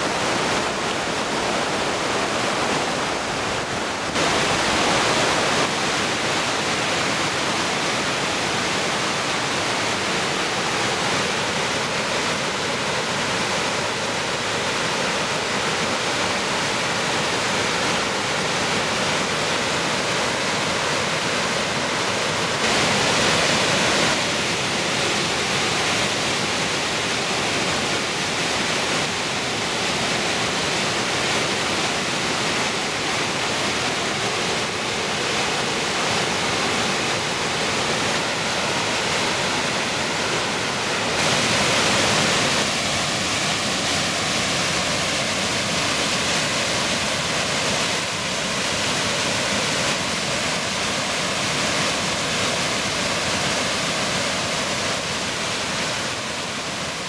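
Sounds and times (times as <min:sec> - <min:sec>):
waterfall roaring: 0:00.0 - 0:57.0.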